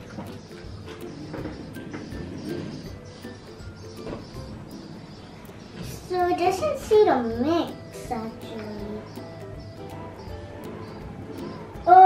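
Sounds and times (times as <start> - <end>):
background music with light beat: 0.0 - 12.0
people talking: 5.8 - 9.1.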